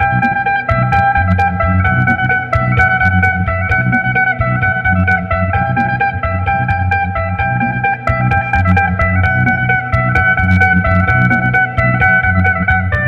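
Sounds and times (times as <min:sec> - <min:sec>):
plucked lute melody: 0:00.0 - 0:13.0.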